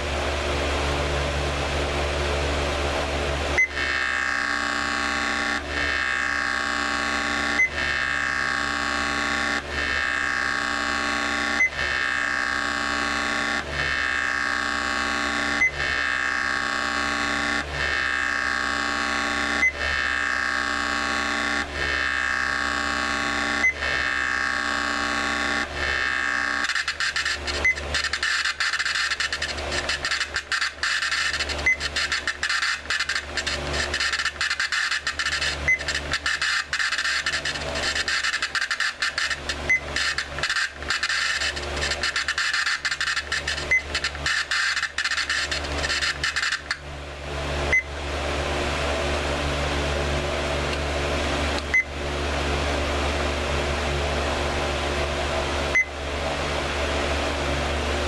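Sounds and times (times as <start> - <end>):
crackling electronic hum: 0.0 - 58.0
short electronic beeps: 3.6 - 3.8, 7.2 - 7.8, 11.5 - 11.9, 23.4 - 23.9, 26.6 - 46.7.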